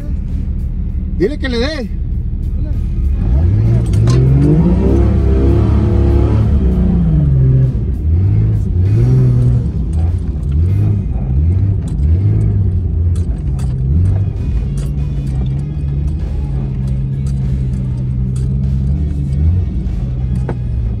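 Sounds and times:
vehicle engine revving: 0.0 - 21.0
rattles: 8.5 - 21.0.

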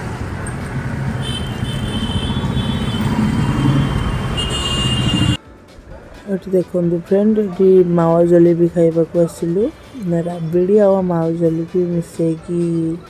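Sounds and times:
scooters and cars passing: 0.0 - 5.4.

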